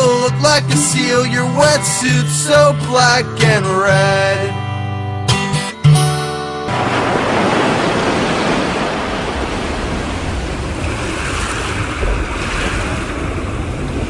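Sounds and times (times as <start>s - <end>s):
ocean waves and surf: 6.3s - 14.0s
wind: 6.3s - 14.0s.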